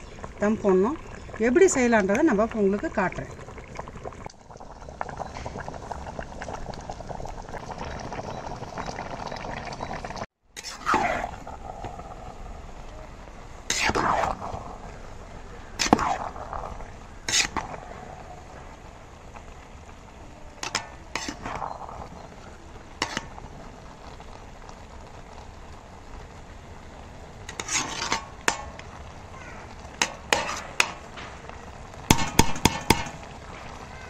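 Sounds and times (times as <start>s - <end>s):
ladle stirring rice in pot: 13.6s - 14.7s, 15.8s - 17.8s, 20.6s - 23.5s, 27.4s - 29.0s, 29.7s - 31.4s.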